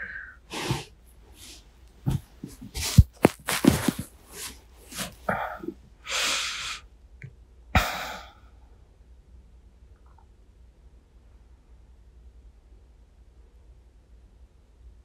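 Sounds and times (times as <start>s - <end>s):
bedding rustling: 0.5s - 5.8s
soft thumps: 2.0s - 5.2s.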